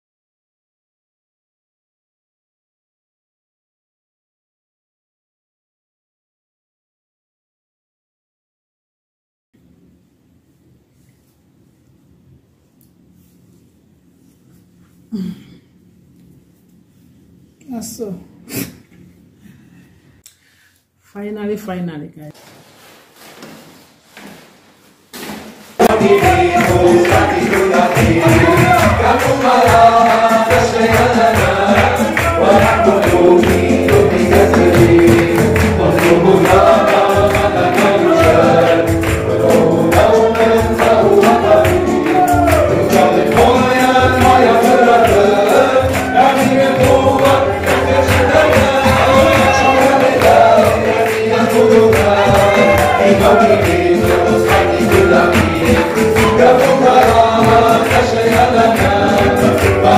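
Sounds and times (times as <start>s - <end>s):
group singing: 25.8s - 59.9s
instruments with percussive beat: 25.8s - 59.9s.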